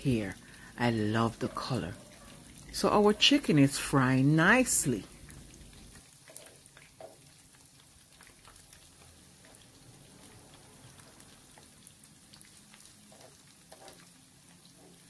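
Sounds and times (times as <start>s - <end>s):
oil sizzling with pops: 0.0s - 15.0s.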